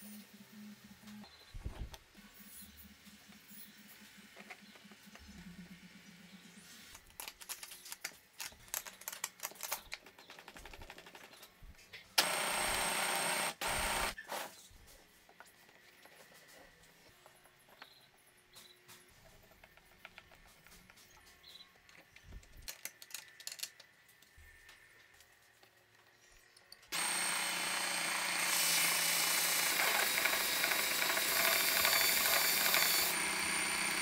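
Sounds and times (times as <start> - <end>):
belt sander running: 12.2 - 14.2, 26.9 - 34.0.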